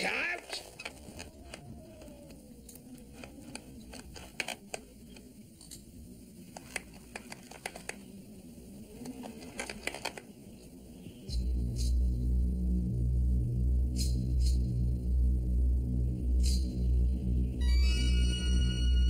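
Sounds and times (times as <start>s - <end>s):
ropes creaking under strain: 0.3s - 5.3s, 9.1s - 10.3s
low musical drone: 10.4s - 19.0s.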